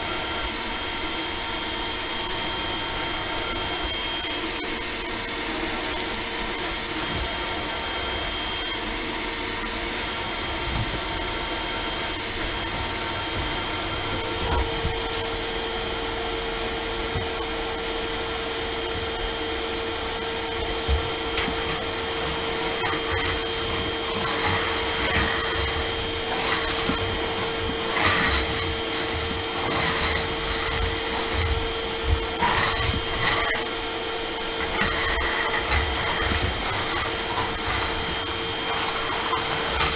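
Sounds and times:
shop vacuum running: 0.0s - 39.9s
debris crackling in hose: 20.4s - 39.9s.

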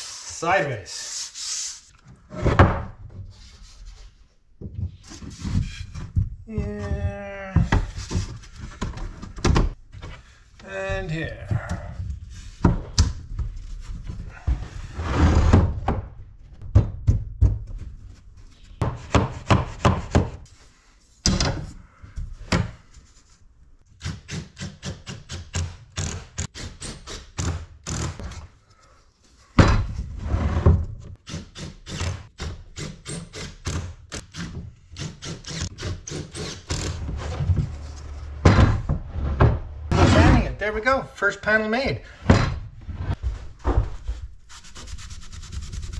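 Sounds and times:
wooden knocks and thunks: 29.6s - 30.0s, 36.7s - 40.5s, 42.2s - 44.2s.

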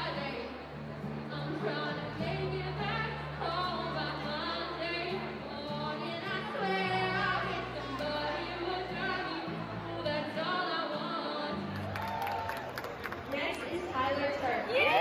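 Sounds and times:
woman singing into a microphone: 0.0s - 0.6s, 1.2s - 11.9s.

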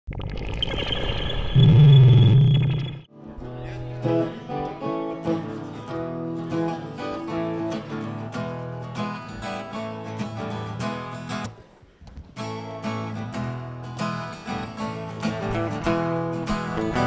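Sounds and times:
acoustic guitar strumming: 3.1s - 11.5s, 12.4s - 17.0s.

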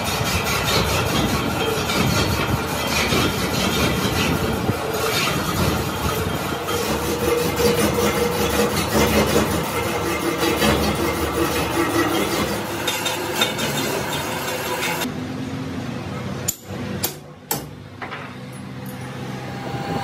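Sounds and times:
metal lathe running: 0.0s - 15.1s.

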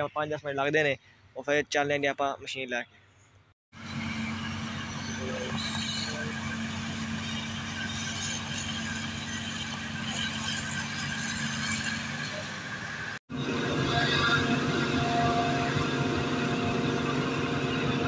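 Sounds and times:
forage harvester droning: 3.8s - 18.0s
tractor engine: 3.8s - 18.0s.

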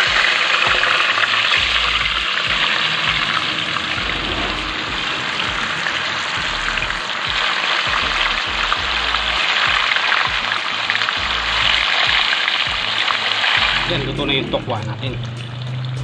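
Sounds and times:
tofu sizzling in hot oil: 0.0s - 2.4s, 7.1s - 13.9s.

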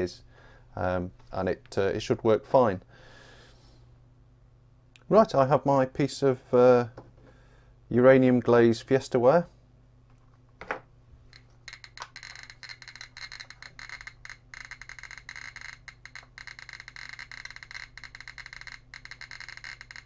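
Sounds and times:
geiger counter clicking rapidly: 11.4s - 20.0s.

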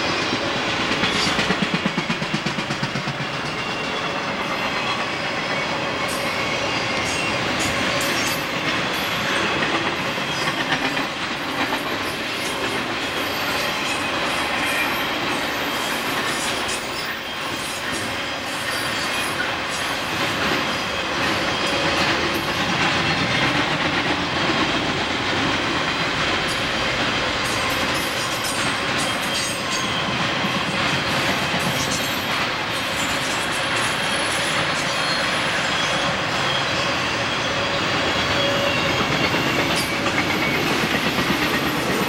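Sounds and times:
train wheels rumbling on rails: 0.0s - 42.0s
clicks of wheels on rail joints: 16.1s - 35.2s.

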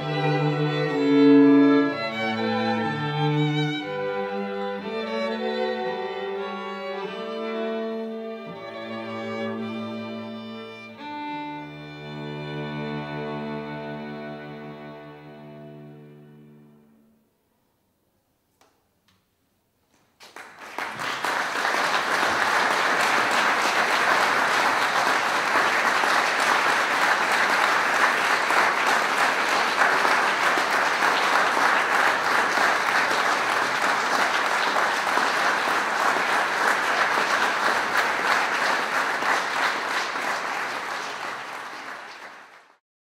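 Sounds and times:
audience applauding: 20.2s - 42.8s.

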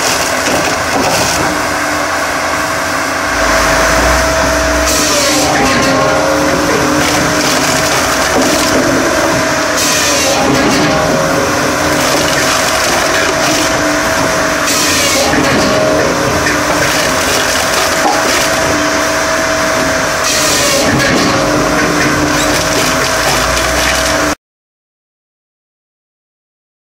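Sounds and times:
wood splitting and tumbling: 0.0s - 1.6s, 6.7s - 24.3s
machine hum: 0.0s - 24.4s
held machine tones: 3.2s - 9.1s.

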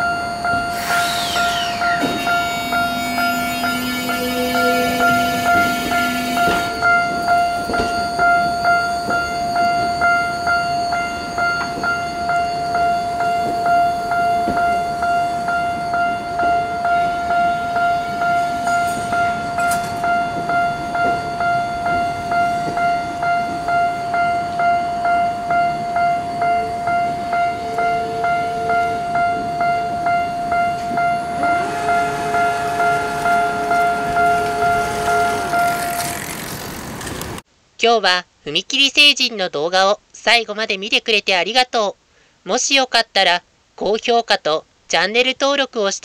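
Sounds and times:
crossing warning bell ringing: 0.0s - 37.0s
train wheels rushing: 0.5s - 15.0s, 30.8s - 37.4s.

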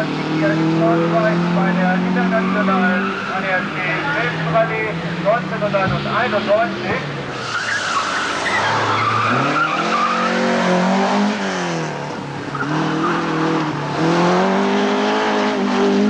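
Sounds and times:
rally car engine revving: 0.0s - 16.0s
tyres squealing: 6.2s - 10.8s.

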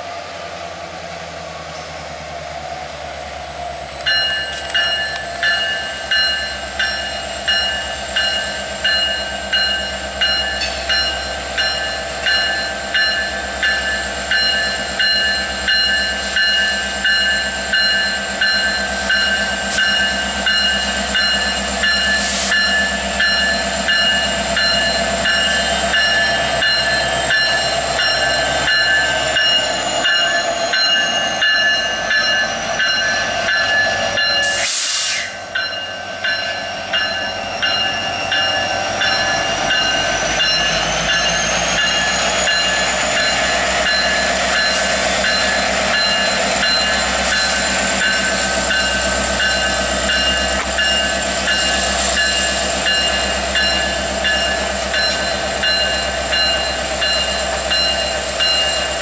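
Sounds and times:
diesel locomotive engine rumble: 0.0s - 59.0s
short hiss: 34.5s - 35.4s.

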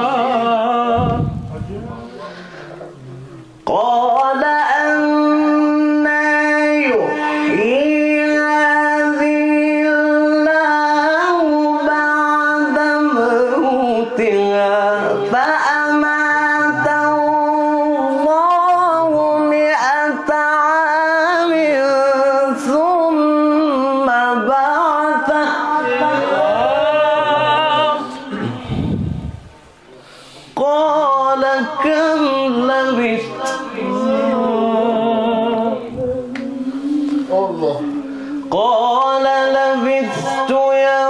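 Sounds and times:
young man chanting recitation: 0.0s - 41.0s.

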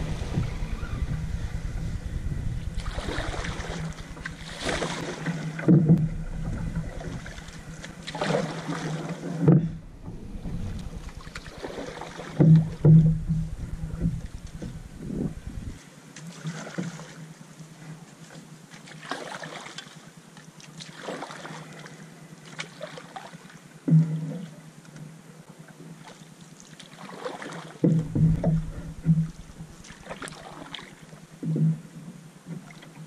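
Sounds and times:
paddle strokes through water: 0.0s - 33.0s
paddle knocks: 2.8s - 15.8s, 27.8s - 31.8s.

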